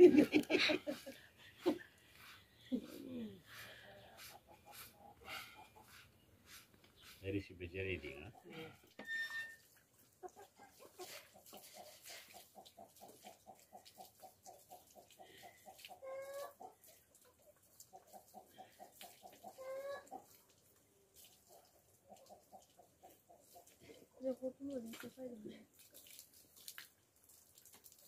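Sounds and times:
chicken clucking and squawking: 0.0s - 7.2s, 8.3s - 9.0s, 10.0s - 20.7s, 21.4s - 24.2s.

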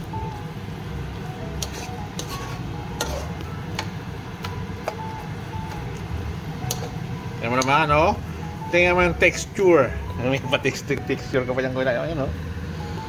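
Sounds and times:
metal spoon scraping a wok: 1.6s - 3.4s.

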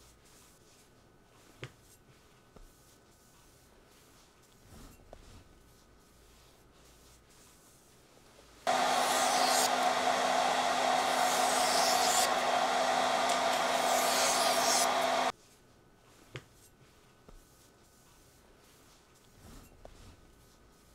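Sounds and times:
small motor whirring: 8.7s - 15.3s.

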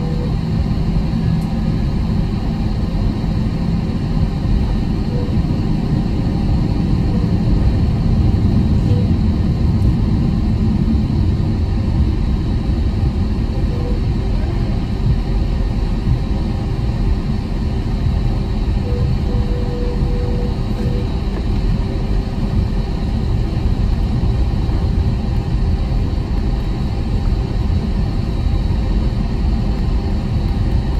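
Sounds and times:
airplane cabin rumble while taxiing: 0.0s - 30.9s.

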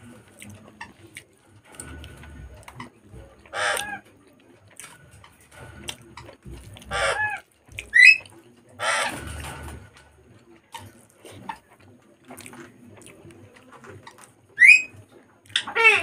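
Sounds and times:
clicks and smacks of eating: 0.0s - 15.8s
chicken squawking: 2.8s - 4.1s, 6.8s - 9.2s, 14.6s - 14.9s, 15.5s - 16.0s.

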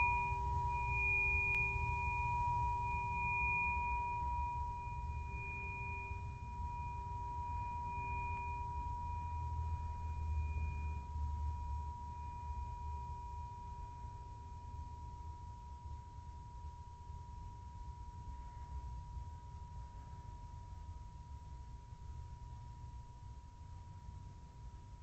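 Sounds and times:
low hum: 0.0s - 15.1s
sustained ringing tone: 0.0s - 16.2s.

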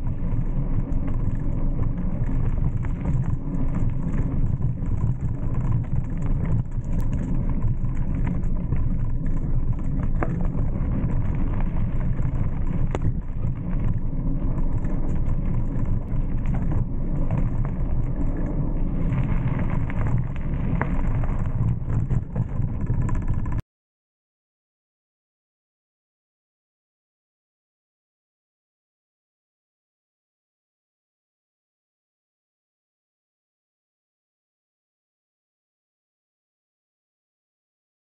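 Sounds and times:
small clicks and rattles: 0.0s - 23.6s
wind and tyre noise: 0.0s - 23.6s.

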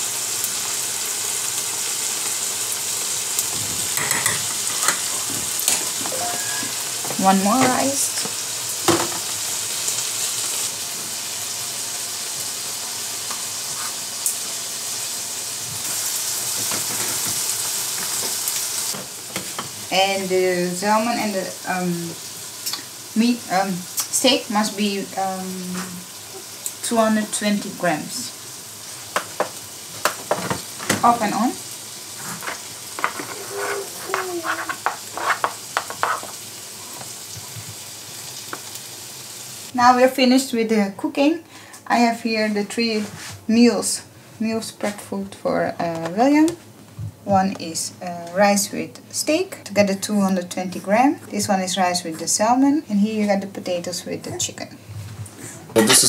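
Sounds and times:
meat sizzling in a frying pan: 0.0s - 40.0s
spatula scraping plastic containers: 32.2s - 36.4s.

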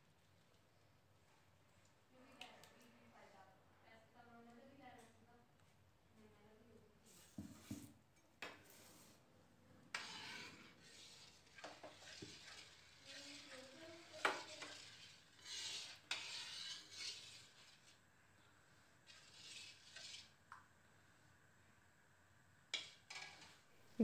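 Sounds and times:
metal spatula scraping pan: 9.9s - 18.1s, 19.0s - 20.4s, 22.7s - 23.7s.

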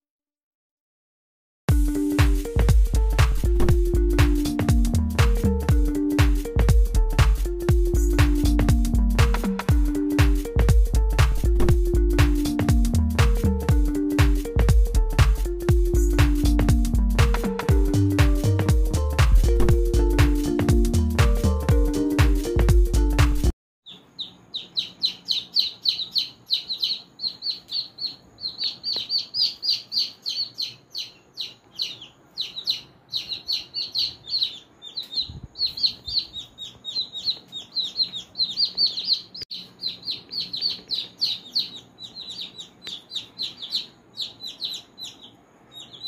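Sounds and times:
chicks peeping: 23.9s - 46.0s.

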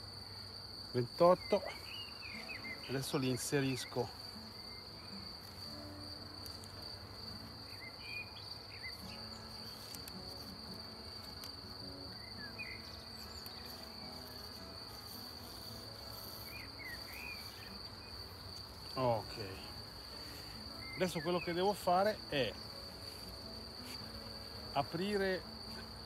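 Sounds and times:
high-pitched insect trill: 0.0s - 26.0s
honeybees buzzing: 0.0s - 26.0s
faint bird chirps: 1.4s - 5.2s, 7.7s - 9.9s, 12.1s - 13.8s.

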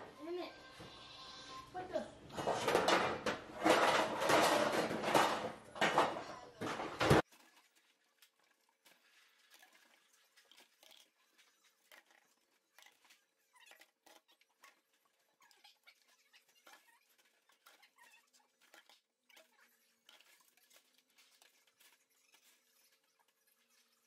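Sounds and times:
dishes clinking in steel sink: 2.3s - 7.2s.

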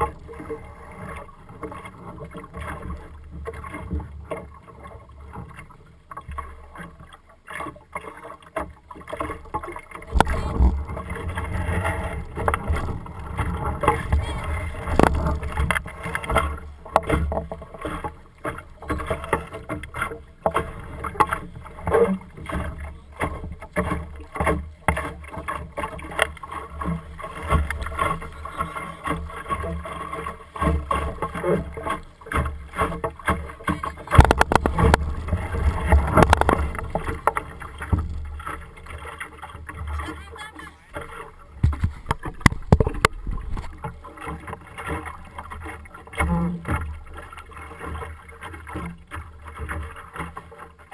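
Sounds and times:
water splashing against hull: 0.0s - 50.9s
wind rumbling on microphone: 10.1s - 16.4s, 33.8s - 38.4s, 41.6s - 44.0s.

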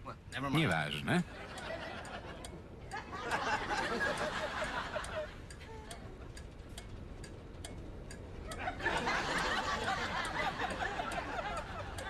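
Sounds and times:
studio audience laughter: 3.0s - 5.3s, 8.6s - 12.0s
turn signal ticking: 4.1s - 8.7s, 10.2s - 12.0s.

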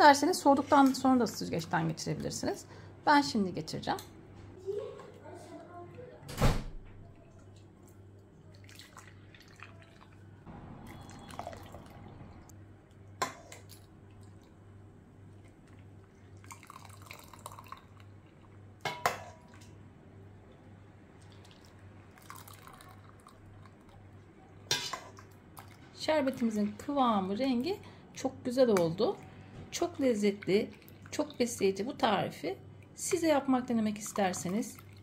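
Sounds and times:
liquid pouring and dripping: 7.0s - 12.5s, 15.4s - 18.6s, 21.1s - 24.2s, 34.0s - 35.0s.

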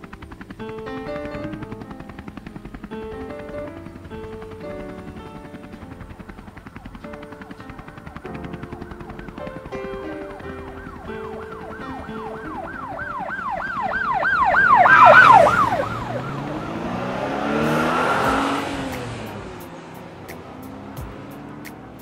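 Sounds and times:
siren yelping: 8.4s - 19.1s
vehicle road rush: 10.3s - 22.0s.

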